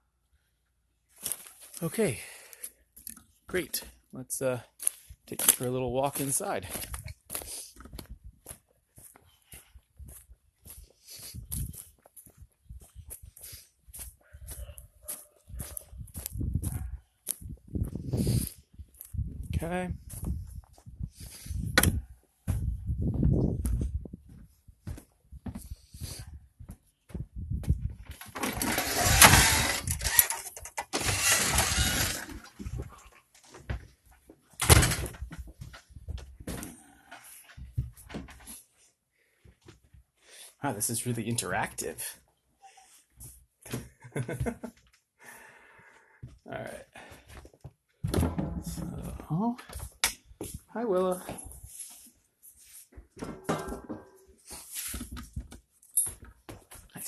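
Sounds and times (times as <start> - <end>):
footsteps on dry grass and leaves: 5.5 - 19.2
heavier bump: 48.0 - 49.2.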